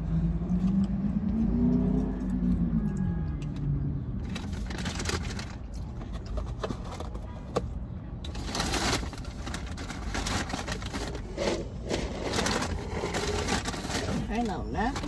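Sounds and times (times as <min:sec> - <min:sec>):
rustling: 0:08.3 - 0:15.0.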